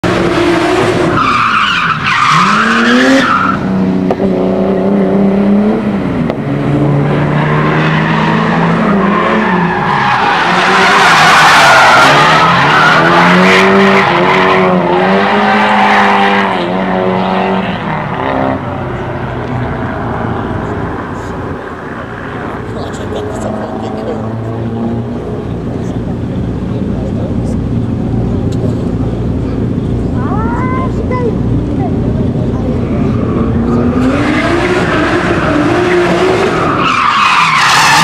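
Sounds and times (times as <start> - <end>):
car engines revving hard: 0.0 - 38.0
tyres squealing and skidding: 0.4 - 3.8, 7.1 - 16.9, 32.7 - 38.0.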